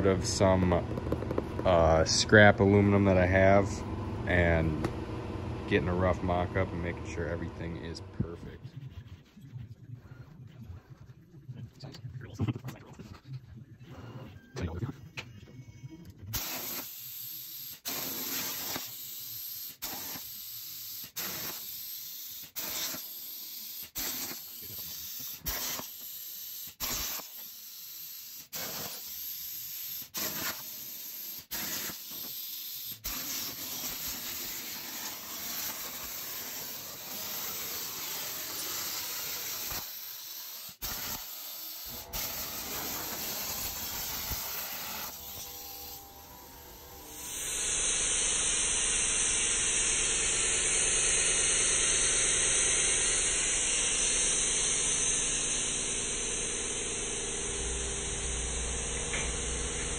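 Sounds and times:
plasma cutter arc hissing: 16.4 - 59.9.

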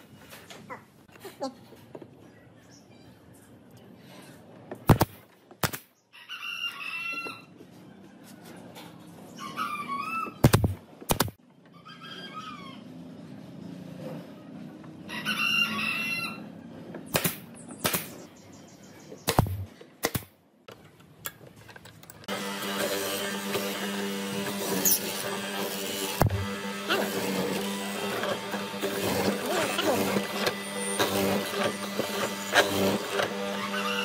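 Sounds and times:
pneumatic nailer firing: 4.8 - 5.9, 10.4 - 11.4, 17.1 - 18.2, 19.3 - 20.3, 22.3 - 34.0
rooster crowing: 6.2 - 7.5, 11.8 - 12.9, 15.1 - 16.5, 33.6 - 34.0
chickens calling: 9.1 - 10.5.

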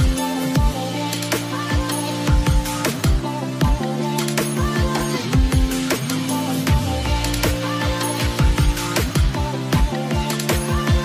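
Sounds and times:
kick drum beat: 0.0 - 0.8, 1.8 - 3.9, 4.8 - 5.8, 6.7 - 7.6, 8.2 - 11.0
held synth chords: 0.0 - 11.0.

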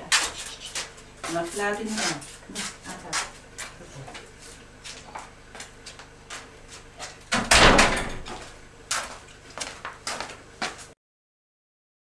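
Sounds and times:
shuffling footsteps: 0.0 - 7.4, 8.3 - 11.0
door slamming shut: 7.3 - 8.5.

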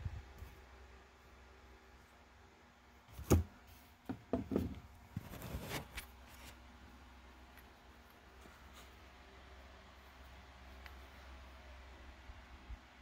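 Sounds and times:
scraping rustle: 5.1 - 6.6.

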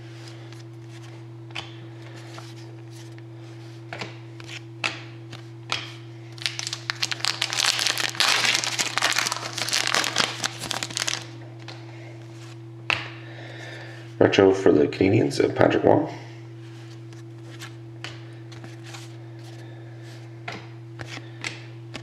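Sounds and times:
steady low hum: 0.0 - 22.0
foil wrapper crinkling: 6.4 - 11.4.

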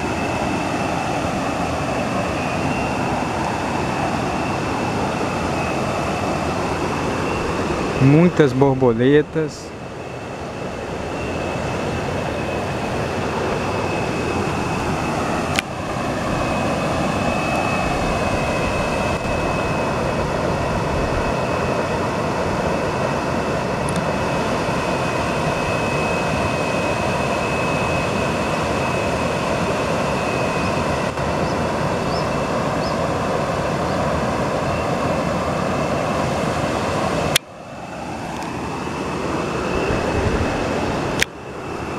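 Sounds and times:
thin high tone: 1.7 - 20.0.

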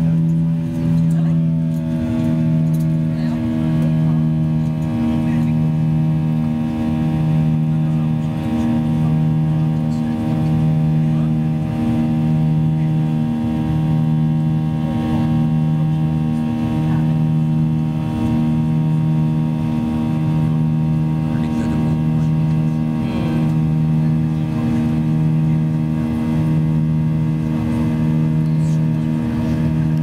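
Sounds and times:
jet engine drone in cabin: 0.0 - 30.0.

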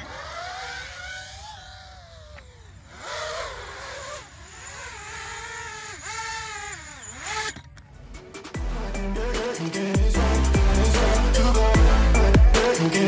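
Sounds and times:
quadcopter motors whining: 0.0 - 8.5.

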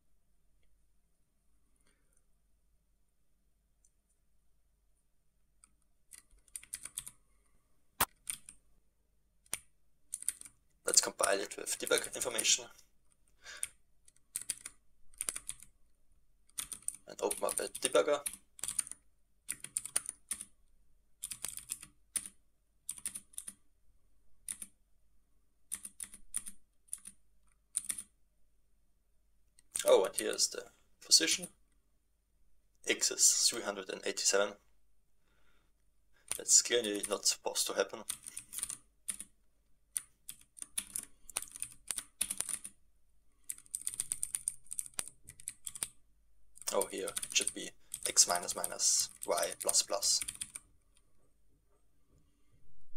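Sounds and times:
computer keyboard typing: 5.6 - 7.2, 8.0 - 8.6, 9.4 - 12.5, 13.6 - 15.8, 16.5 - 20.6, 21.2 - 23.6, 24.4 - 24.8, 25.7 - 28.2, 38.0 - 42.8, 43.4 - 46.0, 46.6 - 50.7.

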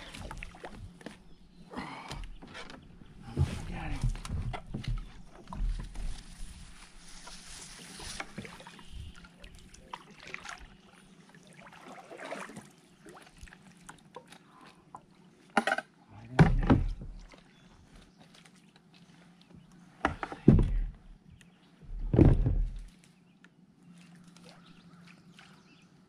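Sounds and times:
water splash: 11.5 - 13.5.

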